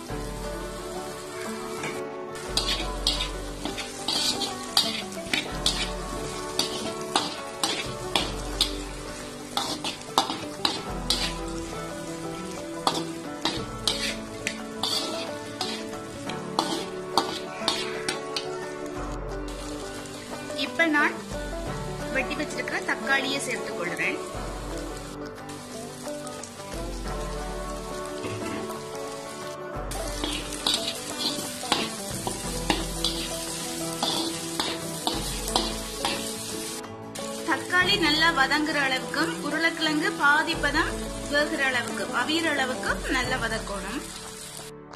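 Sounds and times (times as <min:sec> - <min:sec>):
food sizzling in oil: 0:00.0 - 0:44.9
metal spatula scraping a pan: 0:02.5 - 0:11.7, 0:12.8 - 0:18.5, 0:30.0 - 0:36.3.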